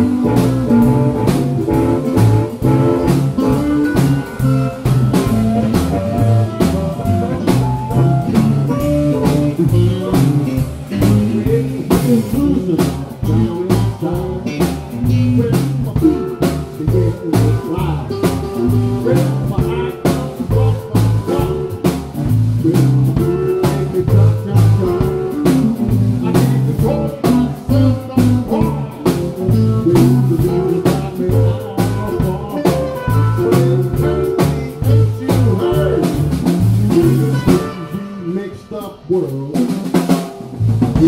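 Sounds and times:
electric guitars: 0.0s - 38.3s
bass guitar: 0.0s - 41.0s
drum kit beat: 0.0s - 41.0s.

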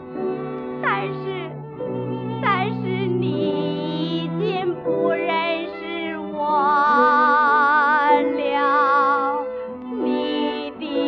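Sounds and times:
instrumental accompaniment: 0.0s - 11.0s
woman singing slow song: 2.4s - 11.0s.

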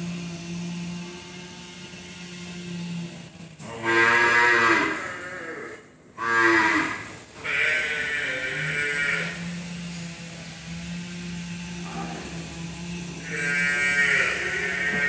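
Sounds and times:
steady low hum: 6.8s - 15.0s.

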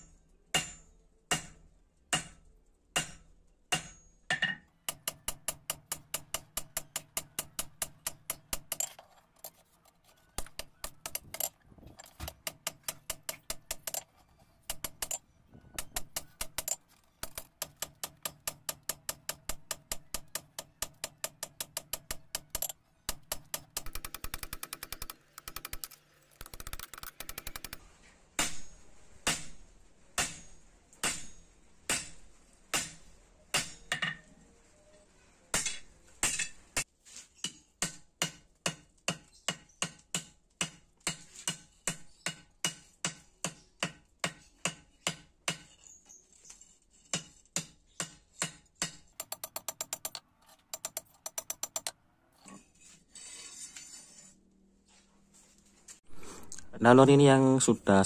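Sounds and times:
hammer striking steel on anvil: 0.0s - 8.9s, 28.4s - 29.6s, 30.2s - 34.2s, 35.5s - 45.8s, 47.1s - 50.0s.

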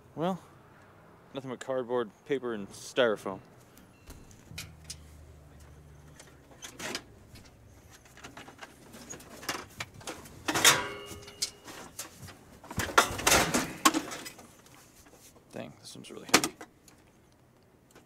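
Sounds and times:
clattering junk: 6.1s - 14.6s
loud metallic clang: 10.5s - 11.6s.

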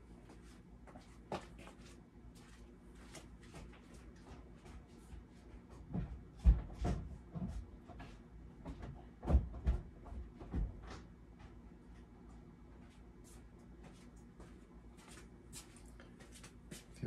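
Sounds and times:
dull knocks and thumps: 5.8s - 11.1s.

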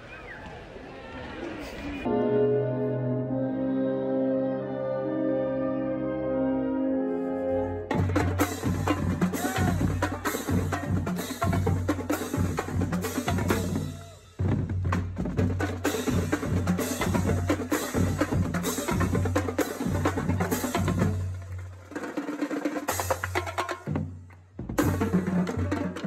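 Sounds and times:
bass drums playing: 7.9s - 21.2s
snare drums playing: 7.9s - 26.0s.

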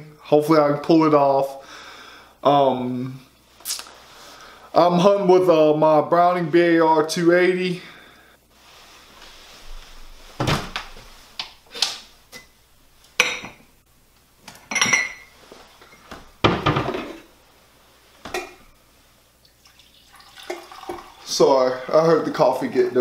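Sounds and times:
dishes clinking: 13.2s - 13.7s, 14.6s - 17.2s, 18.3s - 18.8s.

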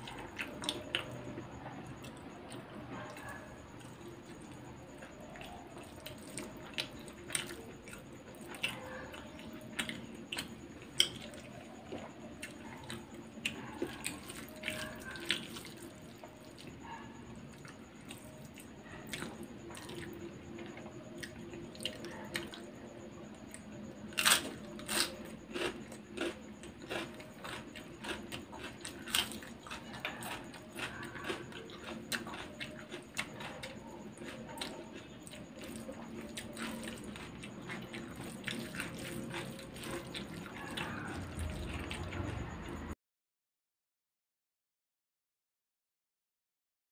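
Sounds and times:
wet chewing smacks: 24.2s - 42.3s.

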